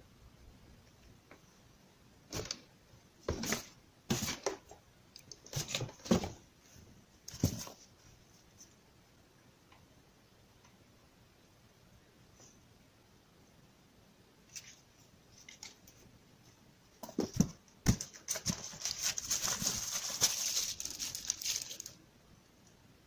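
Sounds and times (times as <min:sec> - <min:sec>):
packaging rustling and knocking: 0:03.2 - 0:04.6.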